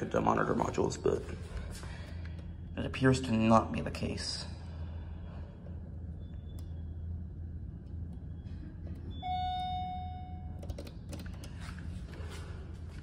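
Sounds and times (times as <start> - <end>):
low hum: 0.0 - 13.0
elevator chime ding: 9.1 - 10.7.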